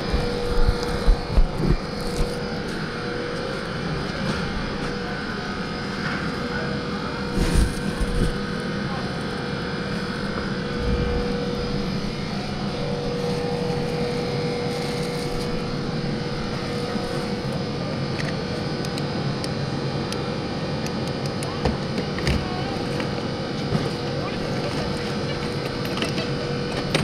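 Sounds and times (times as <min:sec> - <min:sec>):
machine drone with hum: 0:00.0 - 0:27.0
low rumble: 0:10.7 - 0:14.0.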